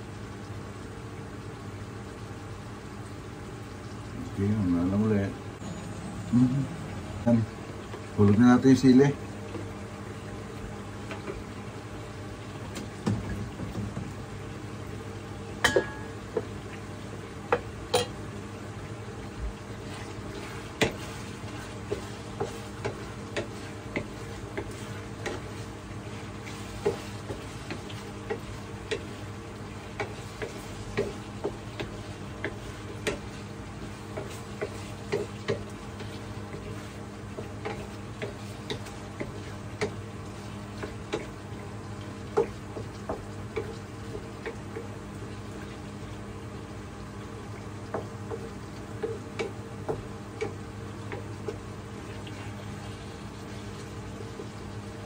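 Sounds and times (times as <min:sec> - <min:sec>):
meat frying in a pan: 0:00.0 - 0:05.6, 0:07.6 - 0:55.0
wooden spatula scraping a pan: 0:19.8 - 0:39.6.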